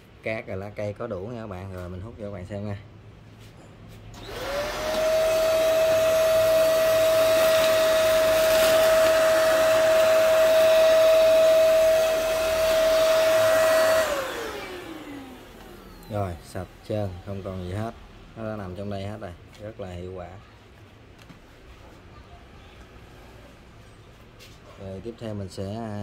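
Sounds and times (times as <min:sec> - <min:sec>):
handheld vacuum cleaner whining: 0:04.2 - 0:16.4.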